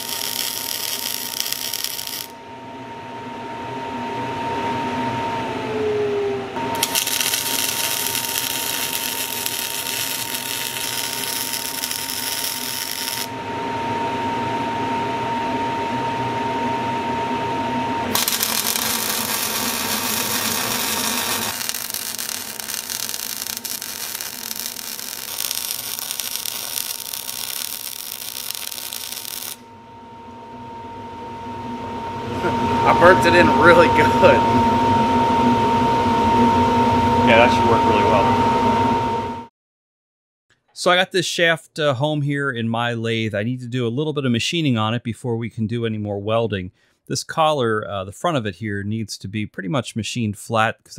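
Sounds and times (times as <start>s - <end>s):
welder arc crackling: 0.0s - 2.4s, 6.8s - 13.3s, 18.1s - 29.6s
steady high tone: 0.0s - 39.4s.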